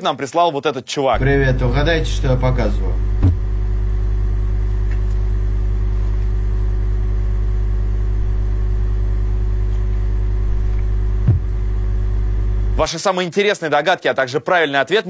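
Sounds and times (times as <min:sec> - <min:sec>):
low hum with buzz: 0:01.1 - 0:12.9.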